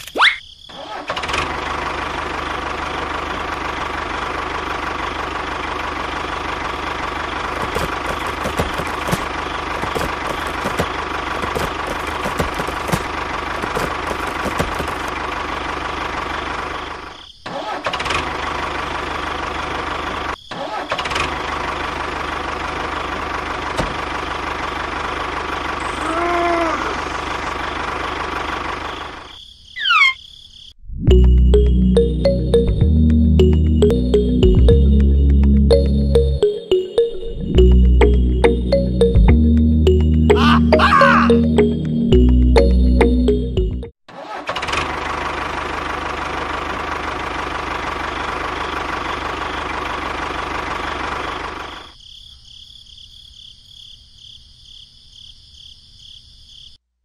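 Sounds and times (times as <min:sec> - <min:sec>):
tractor engine running: 0:00.8 - 0:29.4, 0:31.1 - 0:52.0.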